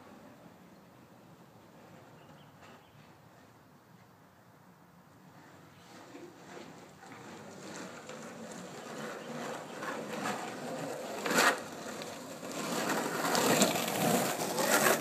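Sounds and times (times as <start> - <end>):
skateboard wheels rolling on asphalt: 0.0 - 15.0
skateboard scrape: 5.2 - 15.0.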